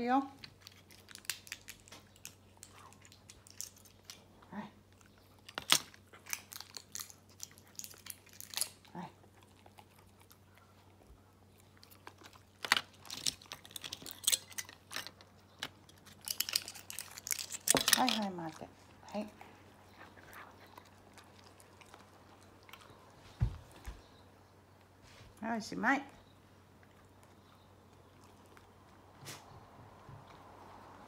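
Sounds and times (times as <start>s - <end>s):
crinkling: 0.3s - 24.2s
dogs crunching treats: 0.4s - 24.0s.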